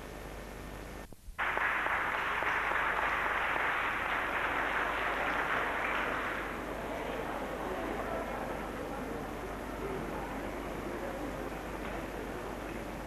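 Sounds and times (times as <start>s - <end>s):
faint tape hiss: 0.0s - 13.0s
audience applauding: 1.4s - 7.6s.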